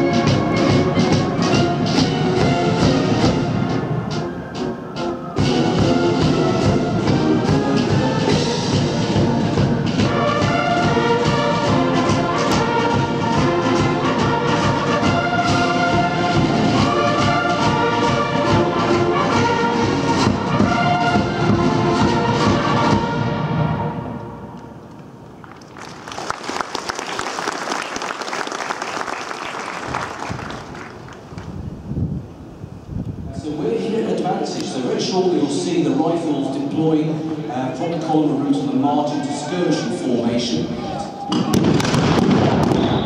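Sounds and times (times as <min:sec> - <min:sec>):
military band of bugles and brass: 0:00.0 - 0:24.9, 0:33.3 - 0:43.0.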